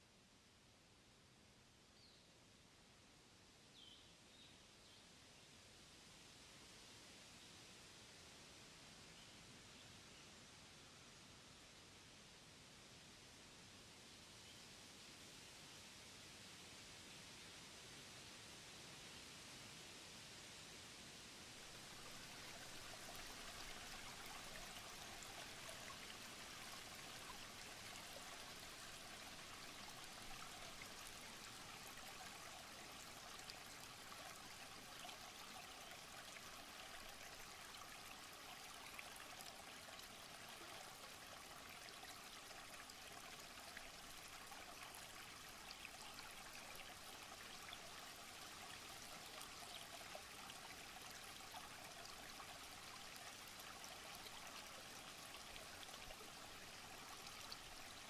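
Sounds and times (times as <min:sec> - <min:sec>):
stream babbling over stones: 0:21.6 - 0:58.0.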